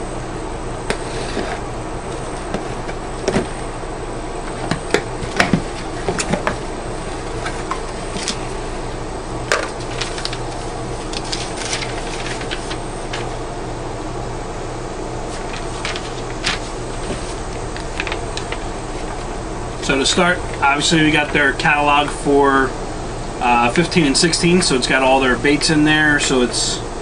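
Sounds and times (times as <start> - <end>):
background hum: 0.0 - 27.0
cardboard and paper rustling: 9.7 - 13.4, 15.3 - 19.3.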